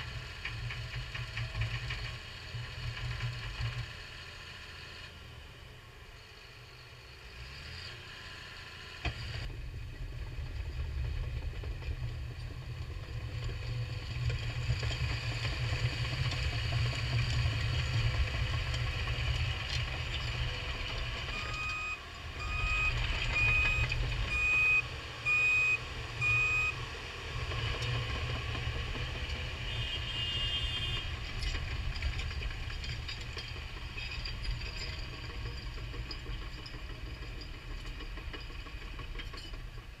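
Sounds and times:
diesel engine running: 0:08.1 - 0:40.0
backup alarm beeping: 0:21.3 - 0:26.8.

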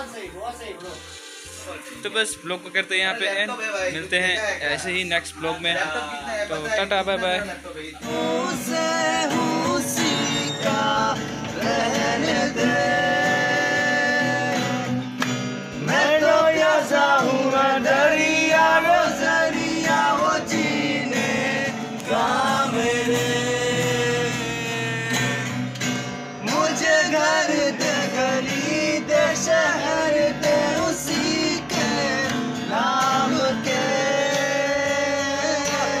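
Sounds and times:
strummed acoustic guitar: 0:00.0 - 0:36.0
man singing: 0:08.0 - 0:15.2, 0:15.8 - 0:25.7, 0:26.4 - 0:36.0.

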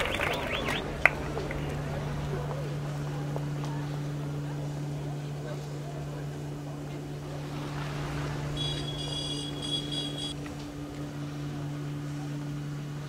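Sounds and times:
low hum: 0:00.0 - 0:13.0
street crowd: 0:00.0 - 0:13.0
high-pitched ringing: 0:08.6 - 0:10.4.

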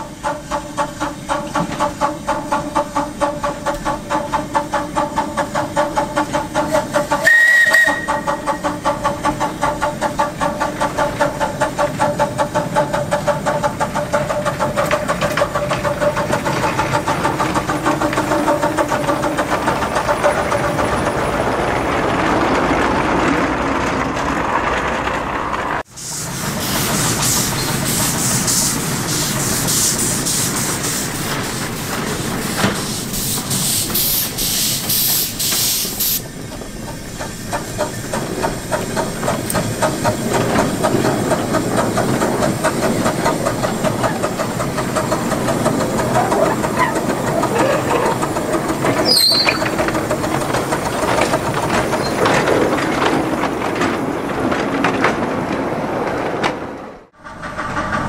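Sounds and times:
loud steam hissing: 0:00.0 - 0:21.4, 0:25.8 - 0:52.8
steam locomotive exhaust beat: 0:00.0 - 0:23.3, 0:25.8 - 0:55.2, 0:57.1 - 0:58.0
high whistle toot: 0:07.2 - 0:08.3.

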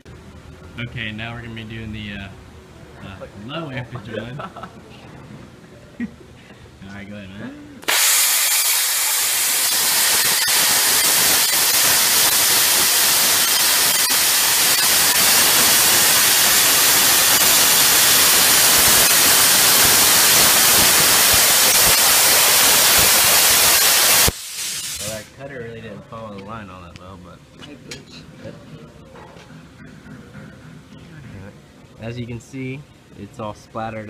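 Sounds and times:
plasma cutter hissing: 0:07.8 - 0:25.3.

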